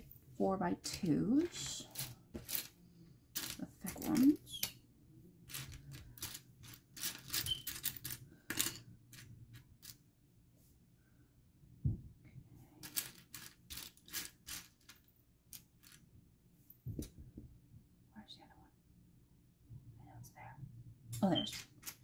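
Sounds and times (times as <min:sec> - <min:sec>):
plastic bricks clattering: 0:03.4 - 0:04.7, 0:05.5 - 0:09.6, 0:12.8 - 0:16.0.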